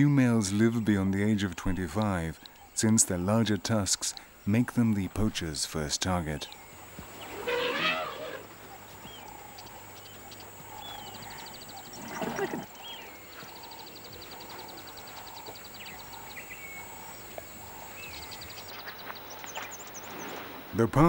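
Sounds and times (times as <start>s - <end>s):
birds chirping and trilling: 0.0s - 21.0s
short animal call: 7.3s - 8.5s.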